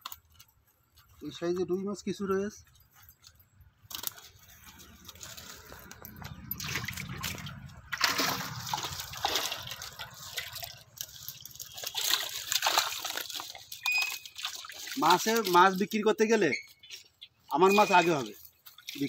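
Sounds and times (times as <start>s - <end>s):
splashing in shallow muddy water: 3.8s - 19.0s.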